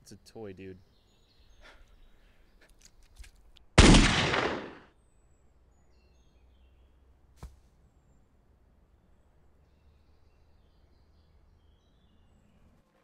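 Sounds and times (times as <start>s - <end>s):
pistol gunshot: 3.8s - 4.9s.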